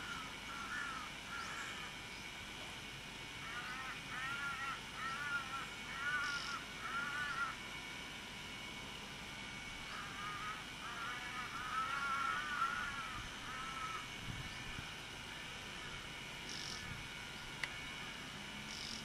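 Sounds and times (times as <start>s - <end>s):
bird calling: 0.0s - 2.4s, 3.4s - 7.6s, 9.7s - 17.7s, 18.7s - 19.0s.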